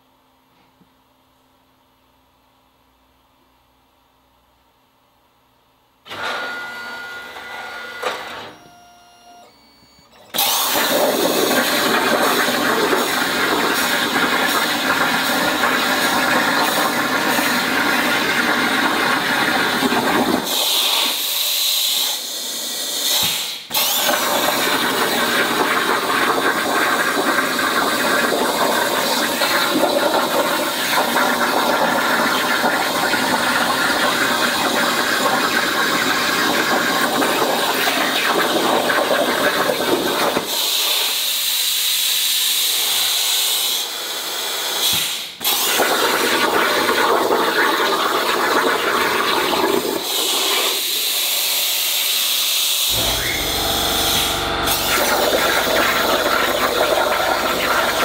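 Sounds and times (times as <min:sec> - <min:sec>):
plasma torch hissing: 0:52.8 - 0:58.0.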